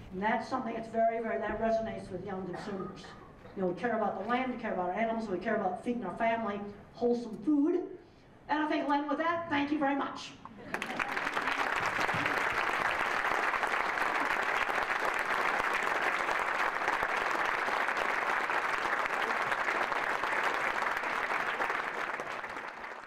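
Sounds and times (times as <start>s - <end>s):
audience applauding: 10.7s - 23.0s.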